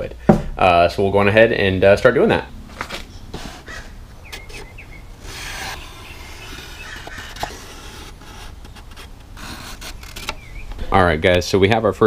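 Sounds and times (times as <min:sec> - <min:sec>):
marker scratching on cardstock: 0:05.2 - 0:10.3
paper rustling: 0:05.3 - 0:10.5.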